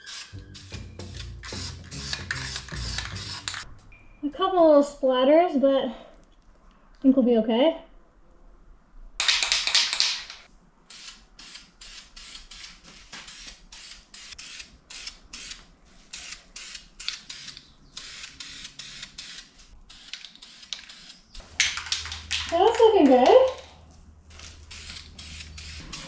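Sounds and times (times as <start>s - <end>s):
aerosol spray can hissing: 1.1s - 3.6s.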